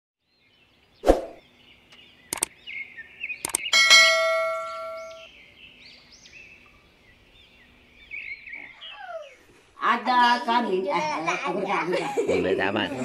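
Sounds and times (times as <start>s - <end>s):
sharp clicks: 1.9s - 2.5s, 3.4s - 3.7s
high chirps: 2.3s - 2.6s, 3.4s - 5.3s
bright chime ringing: 3.8s - 5.3s.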